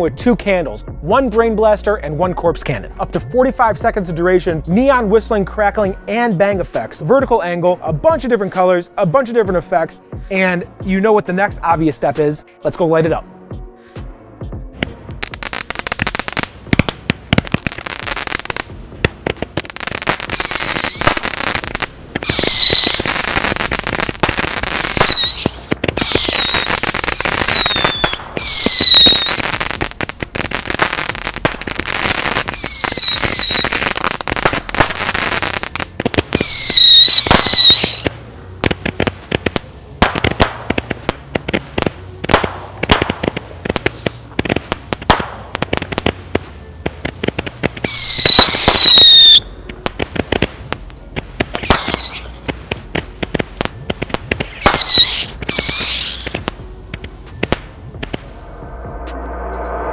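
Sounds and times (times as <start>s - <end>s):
firework pops: 14.8s - 58.3s
crackling firework shots: 14.8s - 58.4s
falling firework whistles: 19.5s - 38.2s, 47.0s - 49.6s, 51.5s - 52.6s, 54.2s - 56.5s.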